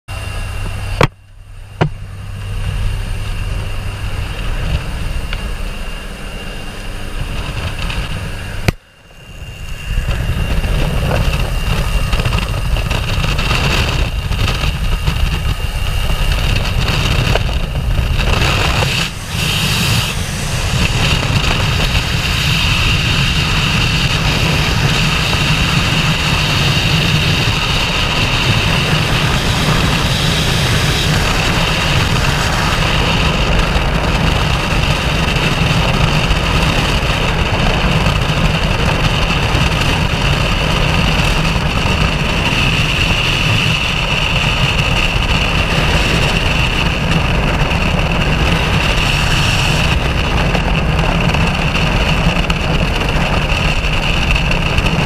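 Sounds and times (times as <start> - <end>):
plane engine drone: 0.1 - 55.0
wind rush on microphone: 0.1 - 55.0
air rushing hiss: 18.4 - 34.9, 48.0 - 50.3.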